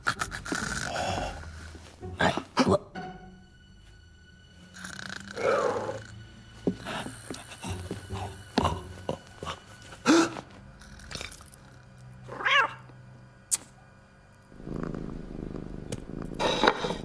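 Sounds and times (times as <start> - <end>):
cat meowing: 12.3 - 12.8.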